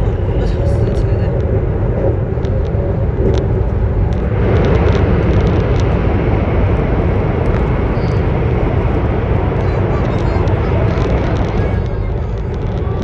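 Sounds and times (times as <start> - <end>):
train rumble: 0.0 - 13.0.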